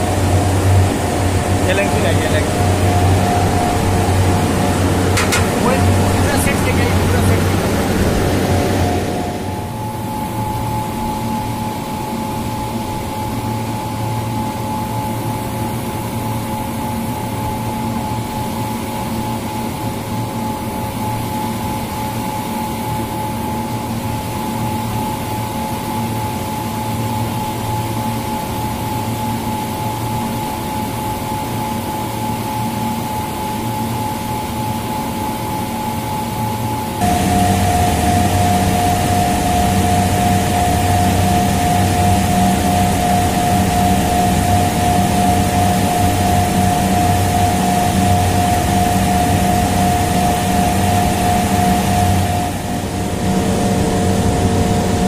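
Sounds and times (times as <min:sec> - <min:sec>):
steady tones: 0:00.0 - 0:10.7, 0:37.0 - 0:55.0
constant rushing noise: 0:00.0 - 0:55.0
machine hum: 0:00.0 - 0:55.0.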